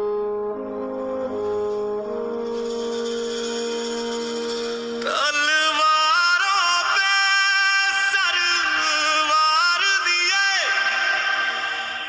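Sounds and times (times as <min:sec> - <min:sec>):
musical backing: 0:00.0 - 0:12.0
man singing film song: 0:05.0 - 0:12.0.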